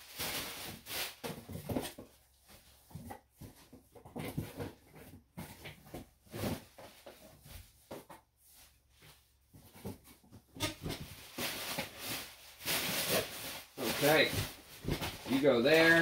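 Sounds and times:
packaging rustling: 10.8 - 16.0.

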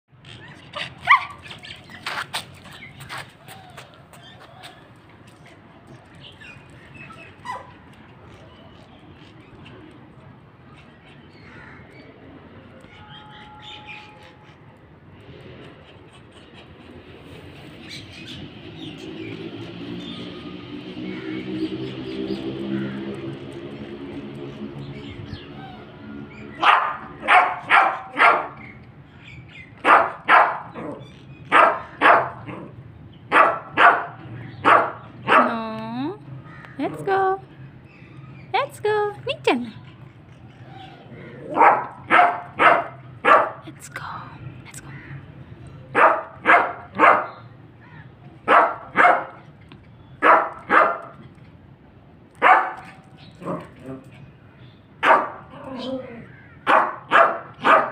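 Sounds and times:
small dog barking: 0.8 - 1.4, 26.6 - 28.6, 29.8 - 30.9, 31.5 - 32.5, 33.3 - 35.6, 41.5 - 43.6, 45.9 - 47.4, 48.5 - 49.4, 50.2 - 51.1, 52.4 - 53.6, 55.0 - 55.9, 56.6 - 57.9.

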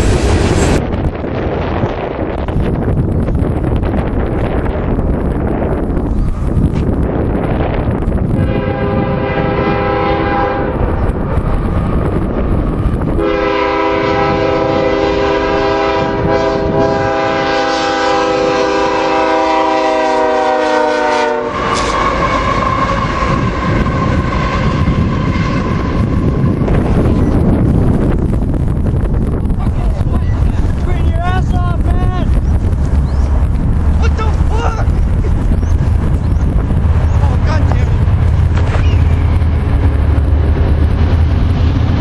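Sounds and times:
train rumbling past: 0.0 - 42.0
train horn blasts: 8.3 - 11.0, 13.2 - 26.5.

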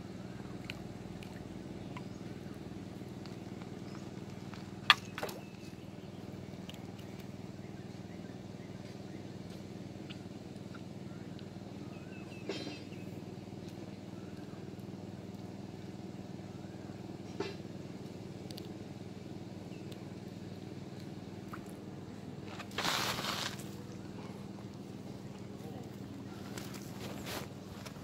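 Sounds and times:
faint bird chirps: 4.9 - 13.2.

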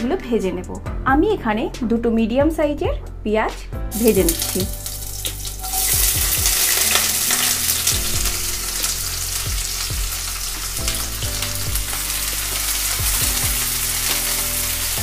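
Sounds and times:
onions sizzling in hot oil: 3.9 - 15.0.

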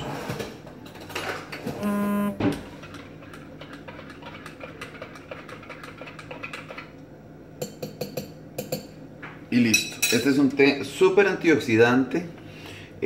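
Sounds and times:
short buzzing tone: 1.8 - 2.6.

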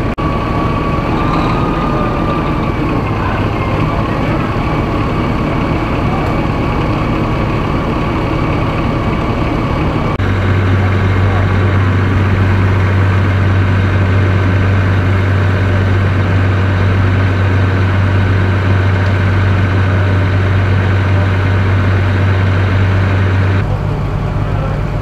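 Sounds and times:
engine running with low hum: 0.0 - 25.0.

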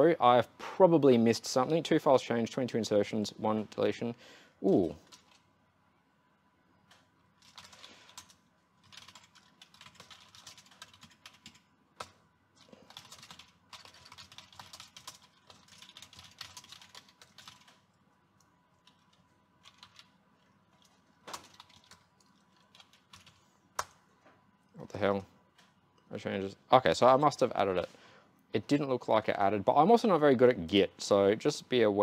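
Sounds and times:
keyboard typing: 5.0 - 5.5, 6.9 - 24.0.

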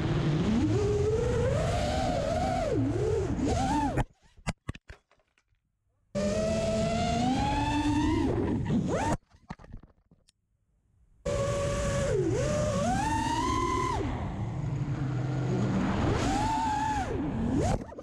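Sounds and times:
quadcopter motors whining: 0.0 - 4.1, 6.2 - 9.2, 11.3 - 17.8.

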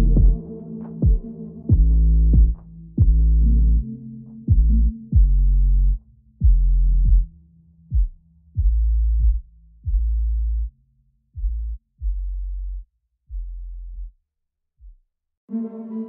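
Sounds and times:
electronic music with deep bass: 0.0 - 10.0.

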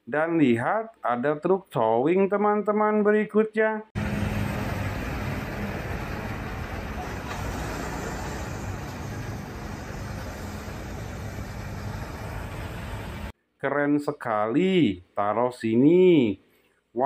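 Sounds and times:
truck engine hum: 4.0 - 13.3
road and tyre noise: 4.0 - 13.4.

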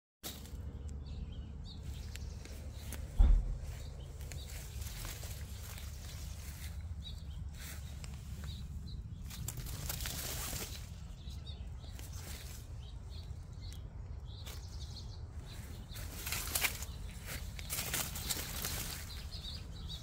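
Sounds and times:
leaves rustling and crackling: 0.2 - 1.2, 1.8 - 20.0
low microphone rumble: 0.5 - 20.0.

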